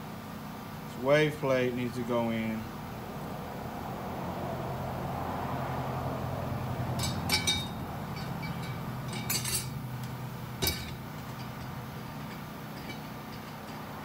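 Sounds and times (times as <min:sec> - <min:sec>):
low steady hum: 0:00.0 - 0:14.0
metal clutch plates clinking: 0:06.9 - 0:14.0.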